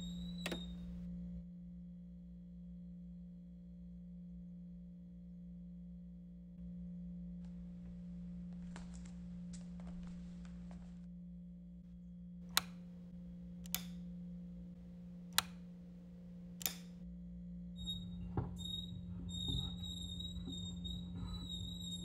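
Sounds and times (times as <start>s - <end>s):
sharp clicks: 0.0s - 1.0s, 12.5s - 14.1s, 14.8s - 17.0s
faint low hum: 0.0s - 1.4s, 2.8s - 22.0s
faint rustling: 7.5s - 11.1s.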